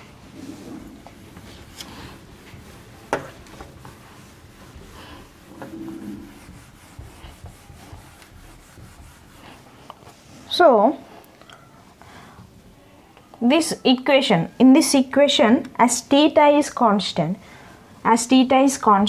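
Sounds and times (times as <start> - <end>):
eraser rubbing on whiteboard: 0.5 - 10.4.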